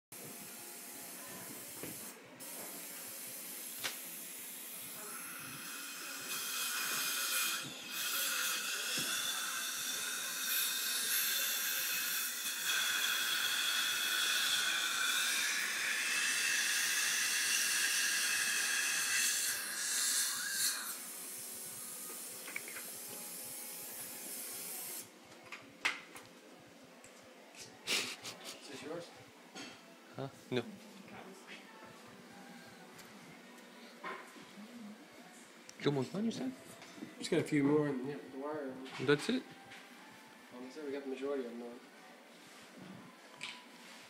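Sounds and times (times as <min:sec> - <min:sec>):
dental instrument hissing: 0:00.8 - 0:25.1.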